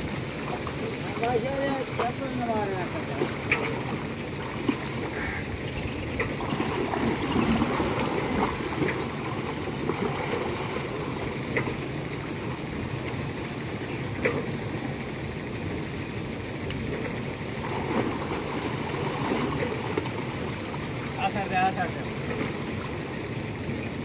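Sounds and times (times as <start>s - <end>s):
water sloshing and splashing: 0.0s - 24.0s
sharp splashes: 6.2s - 11.7s, 17.5s - 21.2s.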